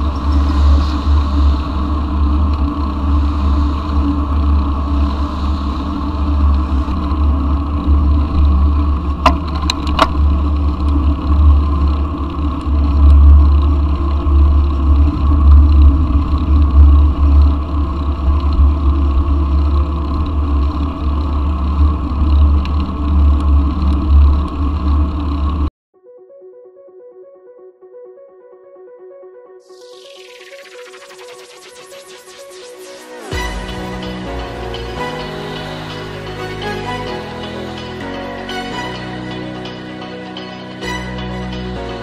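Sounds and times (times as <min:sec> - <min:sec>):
tyre and road noise: 0:00.0 - 0:25.7
wind rumbling on microphone: 0:00.0 - 0:25.7.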